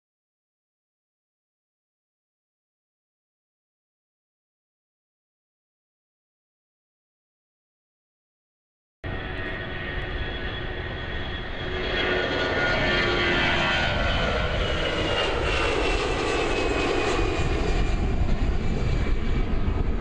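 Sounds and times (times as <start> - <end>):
high jet whine: 9.0 - 20.0
jet engines roaring: 9.1 - 20.0.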